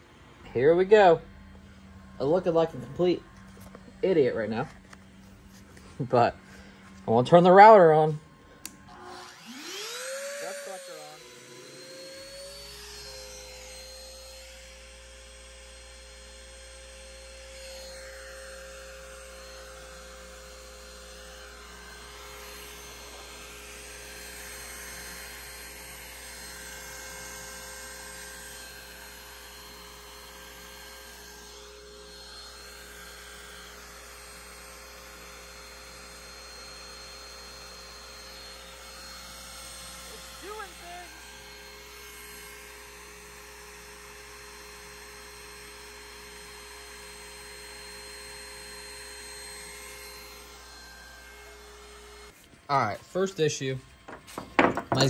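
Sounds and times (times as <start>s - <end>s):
low hum: 0.0s - 15.5s
router spindle high whine: 0.0s - 55.0s
stepper motors tones: 0.0s - 55.0s.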